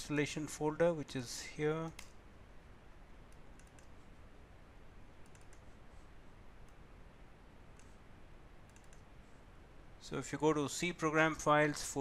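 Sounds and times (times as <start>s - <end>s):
room hiss: 0.0s - 12.0s
computer mouse clicks: 1.9s - 2.2s, 3.3s - 4.0s, 5.2s - 5.8s, 7.7s - 8.0s, 8.6s - 9.1s.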